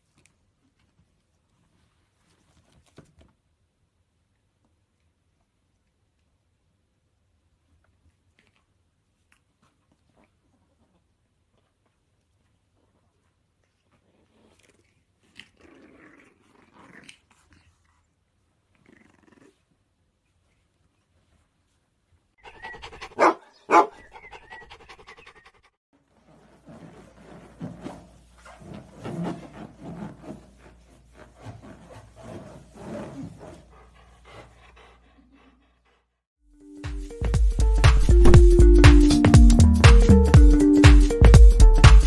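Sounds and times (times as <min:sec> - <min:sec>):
puppies growling and grunting: 0:14.0 - 0:17.7, 0:18.7 - 0:19.8
fur rubbing on balloon: 0:26.0 - 0:35.0.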